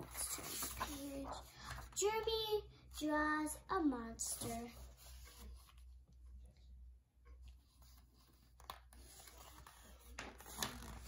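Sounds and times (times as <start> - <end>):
page turning rustle: 0.0 - 2.0, 7.7 - 11.0
paper pages rustling: 0.0 - 2.0, 7.5 - 11.0
low room hum: 0.0 - 11.0.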